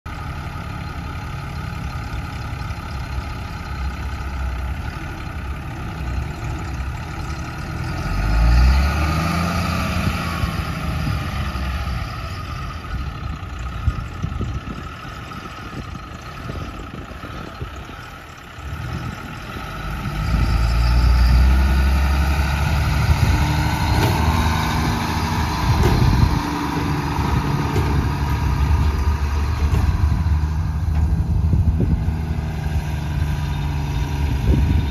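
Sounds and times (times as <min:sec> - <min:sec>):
diesel truck engine running: 0:00.1 - 0:34.9.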